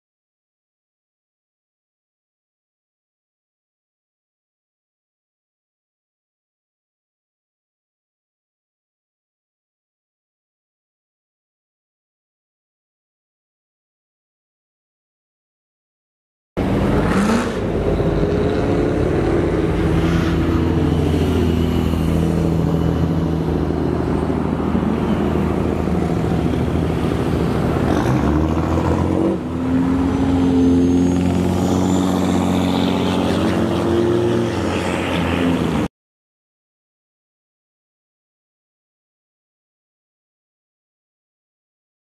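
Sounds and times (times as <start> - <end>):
truck engines revving: 16.6 - 35.9.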